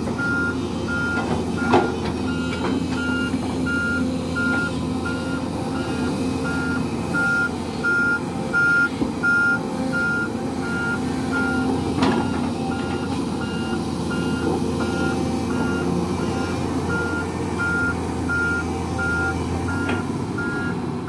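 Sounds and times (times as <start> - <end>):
excavator diesel engine running: 0.0 - 21.0
travel alarm beeping: 0.2 - 11.6.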